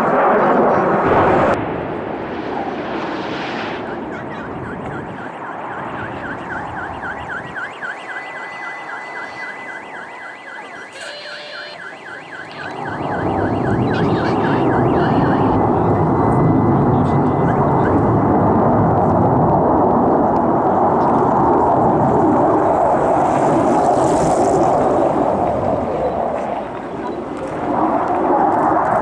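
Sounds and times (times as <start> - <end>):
fighter jet engines rushing: 0.0 - 29.0
electronic alarm warbling: 3.8 - 18.1.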